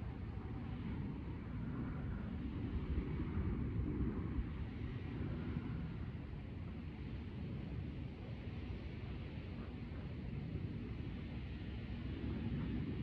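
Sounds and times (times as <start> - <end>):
low rumble of outdoor background noise: 0.0 - 13.0.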